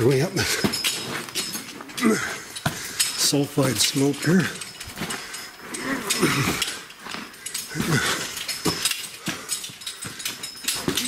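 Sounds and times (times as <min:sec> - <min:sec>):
man grunting: 0:02.0 - 0:02.4
man breathing hard: 0:02.0 - 0:03.2, 0:04.5 - 0:10.9.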